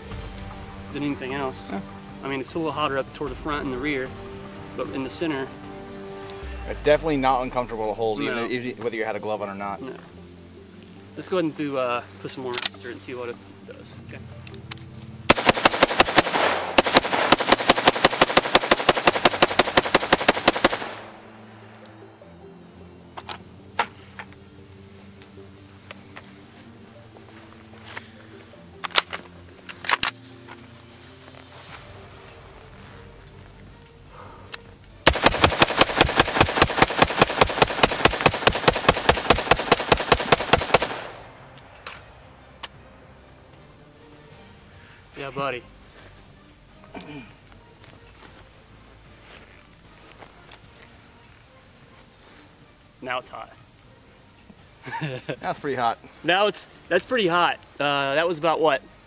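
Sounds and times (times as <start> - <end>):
gunshot echo: 15.3 - 21.2, 35.1 - 41.5
rifle rapid fire: 15.3 - 21.2, 35.0 - 41.3.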